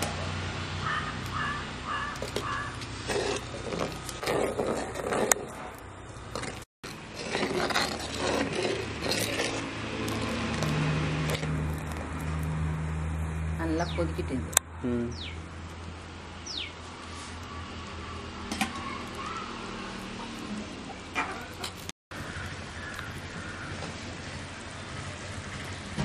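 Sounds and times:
metal ladle scraping clay pot: 2.1s - 12.4s, 19.8s - 21.9s.

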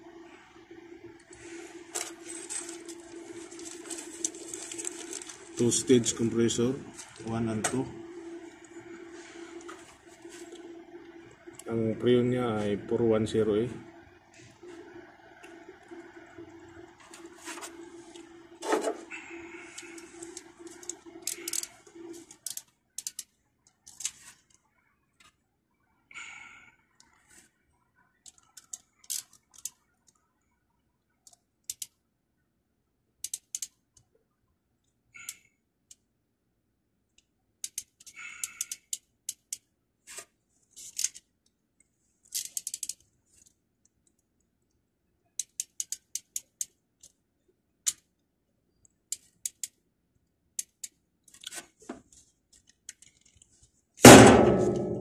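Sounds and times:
clicks and snaps of wiring work: 17.0s - 24.6s, 28.2s - 30.2s, 31.2s - 32.0s, 33.2s - 34.2s, 37.1s - 47.2s, 47.8s - 55.0s.

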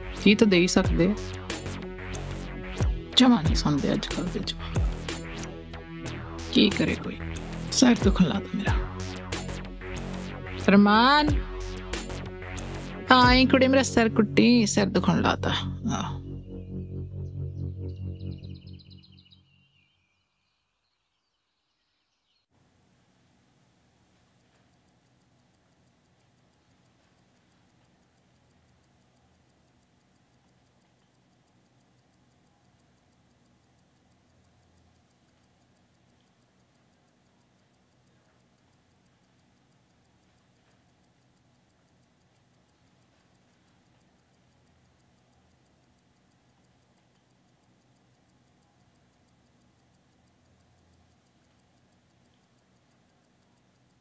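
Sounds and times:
clock ticking: 0.0s - 18.6s, 22.6s - 54.0s
low room hum: 13.1s - 19.6s.

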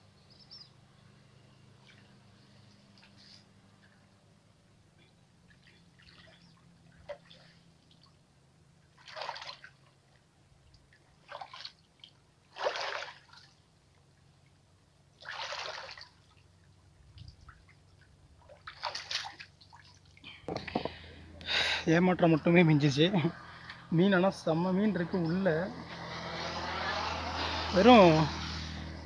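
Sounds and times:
water splashing and sloshing: 5.4s - 21.0s.

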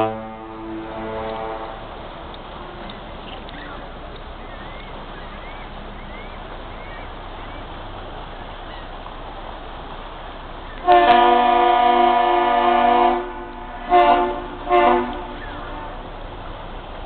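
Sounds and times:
ship horn blast: 0.0s - 2.1s, 10.8s - 16.4s
rushing background noise: 0.0s - 17.0s.

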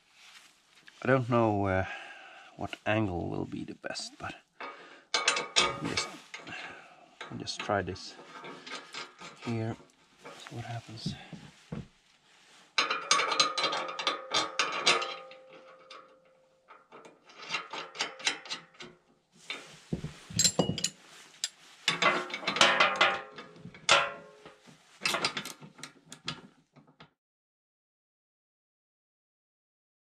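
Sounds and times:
steel parts clinking and clanking: 4.6s - 11.4s, 12.7s - 26.5s.

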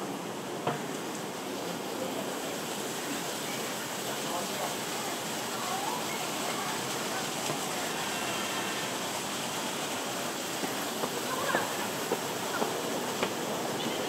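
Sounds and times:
street background noise: 0.0s - 14.0s
faint distant voices: 0.7s - 14.0s.

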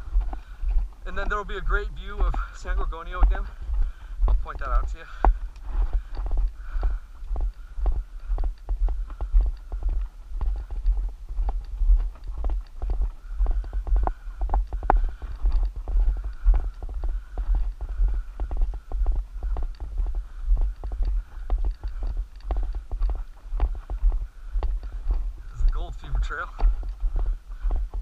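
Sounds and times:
footsteps on gravel: 0.0s - 28.0s.

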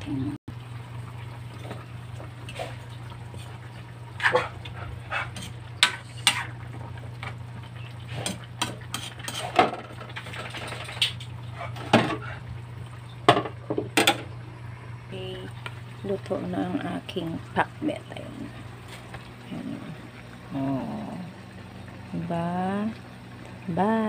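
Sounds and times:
metal spatula scraping a wok: 5.4s - 6.5s, 8.2s - 9.6s
low hum: 11.4s - 24.0s.

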